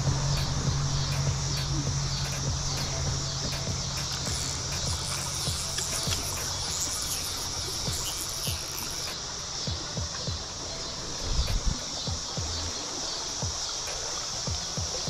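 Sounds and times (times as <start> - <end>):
low bumps: 0.0 - 10.6
insects chirring chorus: 0.0 - 15.0.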